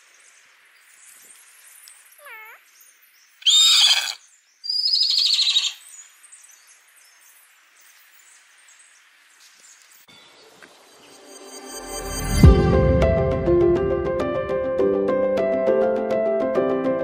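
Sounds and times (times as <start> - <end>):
pony whinnying: 3.4 - 4.2, 4.8 - 5.8.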